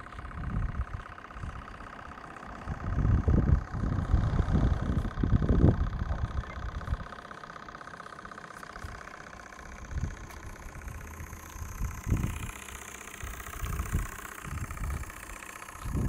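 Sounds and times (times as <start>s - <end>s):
low buffeting: 0.0s - 16.0s
steam engine chuffing: 0.0s - 16.0s.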